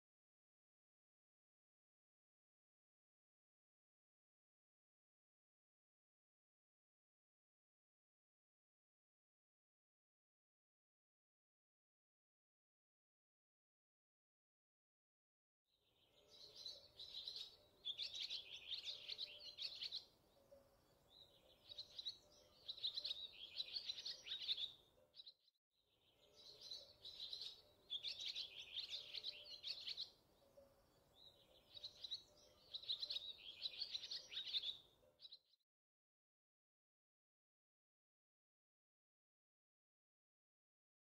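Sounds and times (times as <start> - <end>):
small birds chirping: 15.8 - 35.6.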